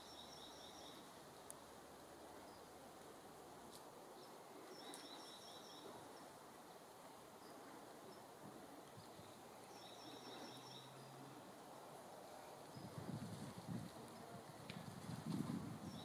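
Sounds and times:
bird chirping: 0:00.0 - 0:01.1, 0:04.2 - 0:06.3, 0:09.0 - 0:11.4.

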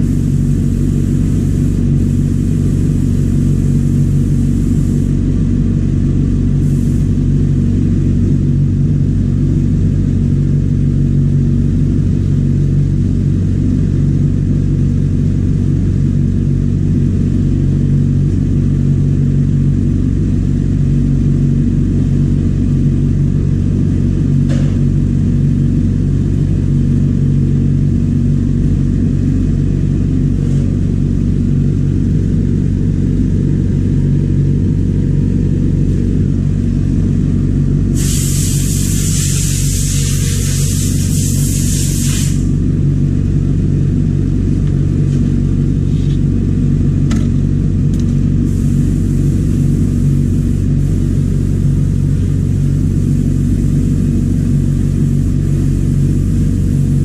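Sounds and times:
loud hiss: 0:00.0 - 0:05.3, 0:06.6 - 0:07.2, 0:37.9 - 0:42.6, 0:48.4 - 0:57.0
vacuum pump humming: 0:00.0 - 0:06.0.

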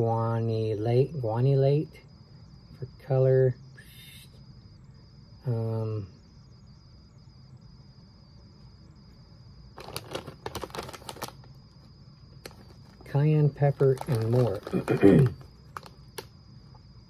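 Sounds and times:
foil chip bag crackling: 0:09.8 - 0:11.6, 0:12.4 - 0:16.3
man humming: 0:14.7 - 0:15.4.

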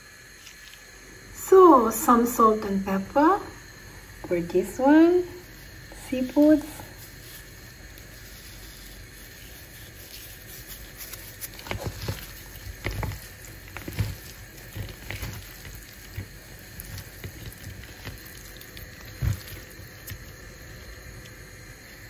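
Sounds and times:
wet seafood squelching in bowl: 0:05.4 - 0:21.4.

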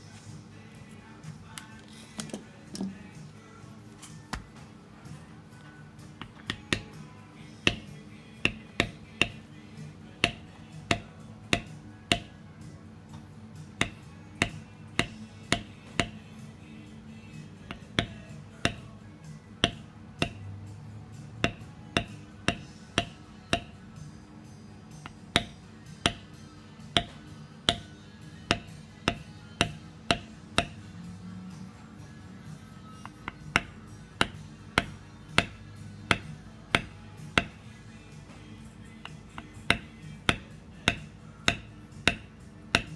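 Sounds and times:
quiet background music: 0:00.0 - 0:42.9
mallet tapping metal tool: 0:06.2 - 0:07.0, 0:07.6 - 0:09.5, 0:10.2 - 0:12.4, 0:13.1 - 0:16.3, 0:17.6 - 0:19.0, 0:19.6 - 0:24.0, 0:24.9 - 0:31.0, 0:32.8 - 0:42.9.

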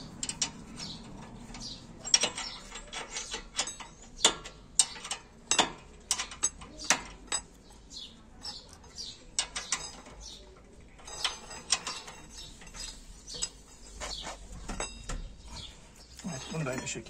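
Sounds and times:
wrench clicking and scraping: 0:00.0 - 0:07.7, 0:08.4 - 0:15.7.

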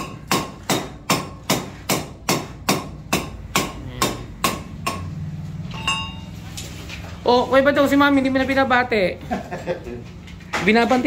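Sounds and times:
hammer striking with metallic ring: 0:05.7 - 0:06.3.

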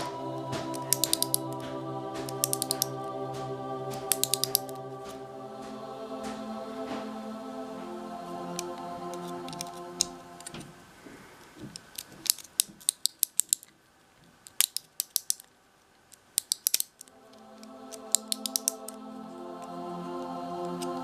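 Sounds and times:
soft background music: 0:00.0 - 0:11.0, 0:17.1 - 0:21.0.

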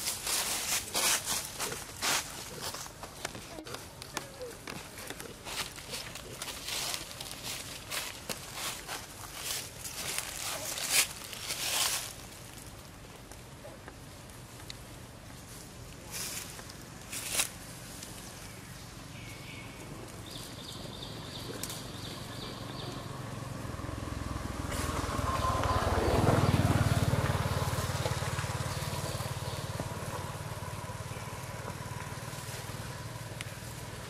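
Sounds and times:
vehicle driving past: 0:18.8 - 0:34.0.

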